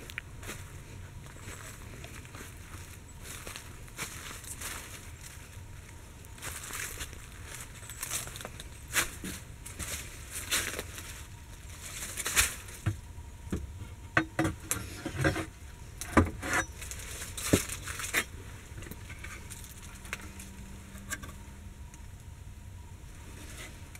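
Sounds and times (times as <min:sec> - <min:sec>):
dry leaves rustling: 0:00.0 - 0:12.9, 0:16.7 - 0:21.0.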